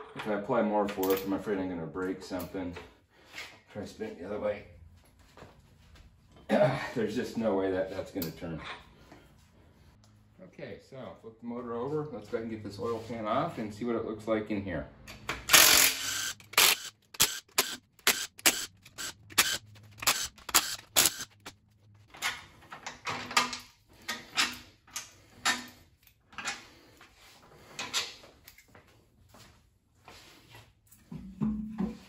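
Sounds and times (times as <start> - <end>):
cordless drill spinning bolts: 15.4 - 21.5.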